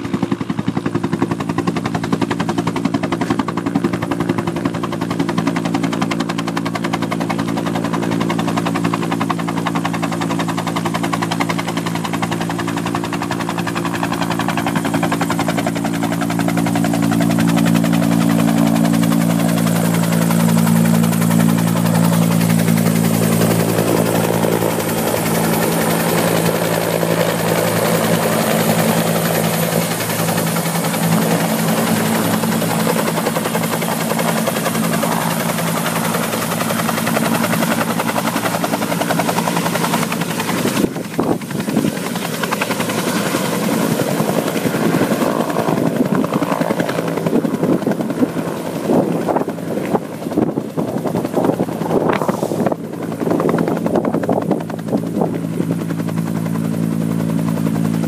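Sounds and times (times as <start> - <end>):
helicopter rotor and engine: 0.0 - 58.0.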